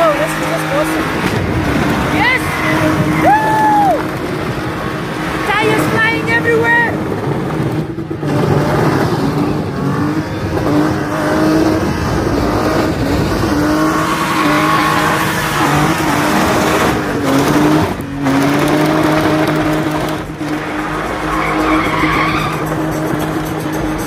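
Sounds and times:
car engine revving high: 0:00.0 - 0:24.0
tyres squealing on tarmac: 0:13.5 - 0:17.0, 0:19.8 - 0:24.0.

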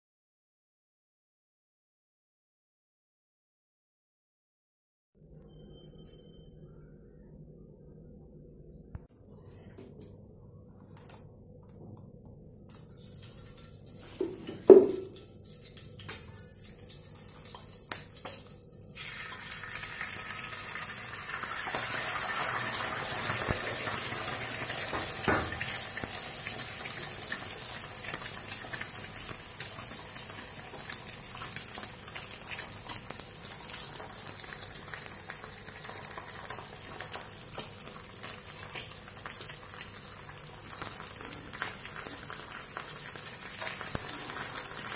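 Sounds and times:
egg sizzling in pan: 0:12.7 - 0:44.9
sharp knocks on pan: 0:24.9 - 0:25.6.

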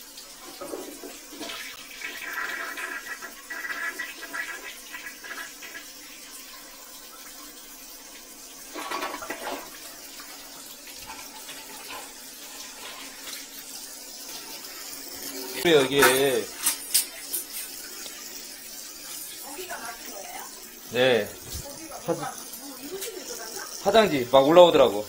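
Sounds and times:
water splashing on tiled floor: 0:08.7 - 0:24.8.

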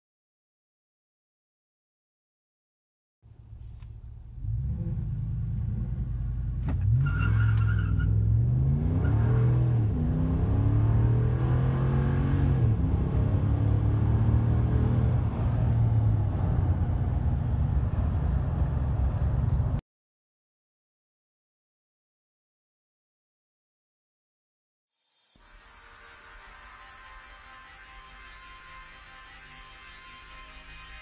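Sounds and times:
engine accelerating through gearshifts: 0:03.6 - 0:19.8
tires squealing: 0:06.8 - 0:09.8.

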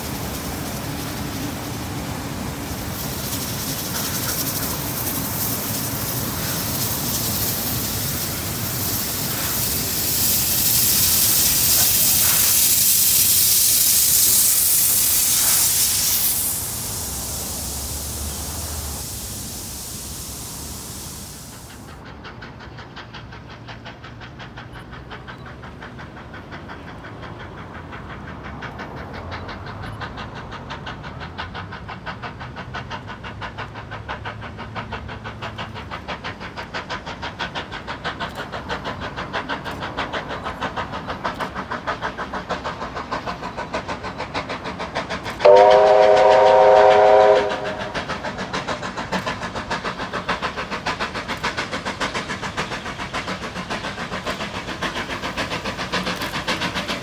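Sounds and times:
steam locomotive exhaust beating: 0:00.0 - 0:57.0
steam whistle chord: 0:45.4 - 0:47.9.

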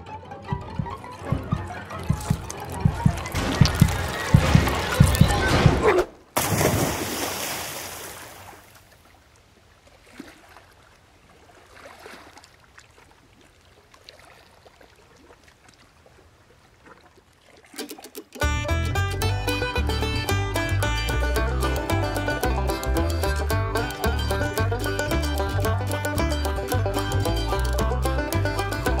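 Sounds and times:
faint water lapping: 0:00.2 - 0:18.5.

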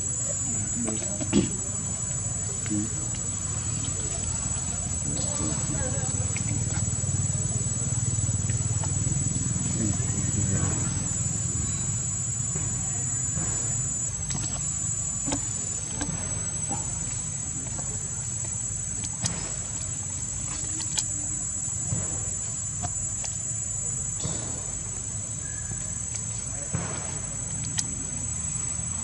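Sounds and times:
insects trilling: 0:00.0 - 0:29.0
faint clicks: 0:25.4 - 0:28.1.

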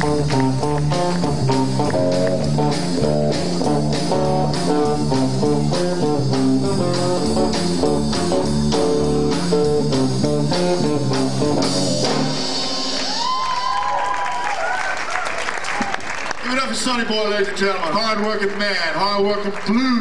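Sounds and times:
drum kit steady beat: 0:00.0 - 0:13.8
bass guitar: 0:00.0 - 0:14.0
electric guitar: 0:00.0 - 0:14.0.

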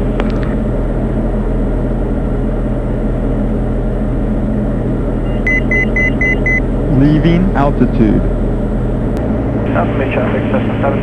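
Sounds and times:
aircraft engine and propeller drone: 0:00.0 - 0:11.0
short high-pitched electronic beeps: 0:05.3 - 0:06.6.

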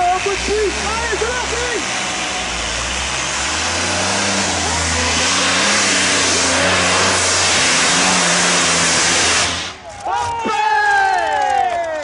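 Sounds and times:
tractor engine droning under load: 0:00.0 - 0:10.2.

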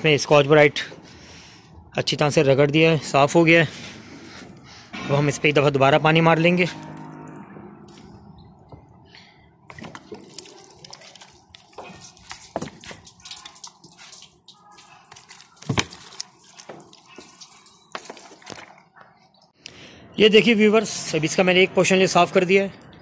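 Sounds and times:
water dripping: 0:06.5 - 0:19.6
water spray splashing on glass: 0:09.7 - 0:18.7.

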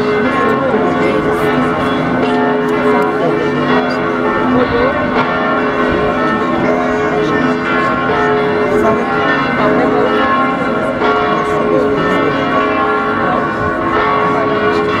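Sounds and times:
church bells pealing: 0:00.0 - 0:15.0.

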